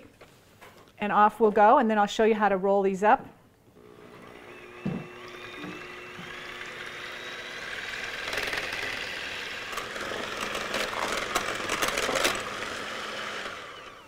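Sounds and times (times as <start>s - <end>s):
electric hand mixer whirring: 3.8s - 14.0s.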